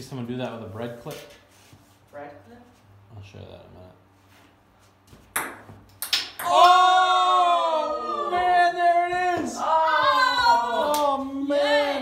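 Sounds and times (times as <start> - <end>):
ping pong ball clicks: 5.4 - 6.5
person yelling excitedly: 6.4 - 12.0.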